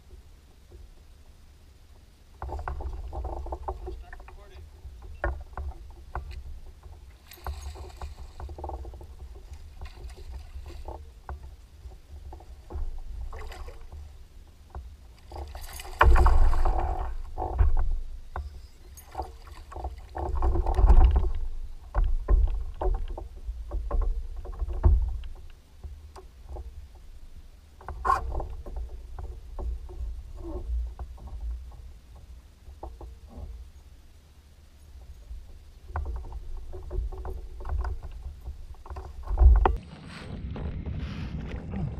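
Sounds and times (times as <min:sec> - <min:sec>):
clicks and knocks from fishing gear: 0:02.4 - 0:14.1, 0:14.7 - 0:26.8, 0:35.0 - 0:39.8
steady low rumble: 0:38.3 - 0:41.9.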